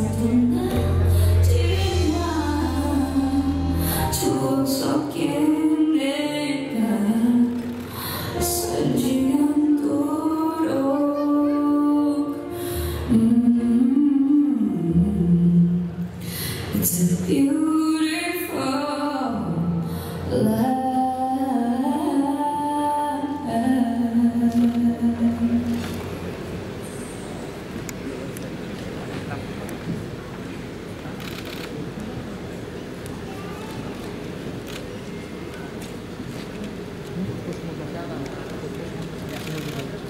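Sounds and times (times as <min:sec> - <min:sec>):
woman singing slow melody: 0:00.0 - 0:26.2.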